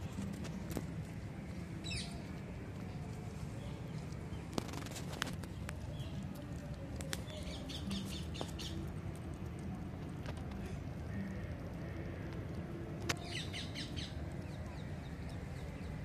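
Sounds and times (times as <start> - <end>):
small birds chirping: 0.2 - 9.0, 13.1 - 16.0.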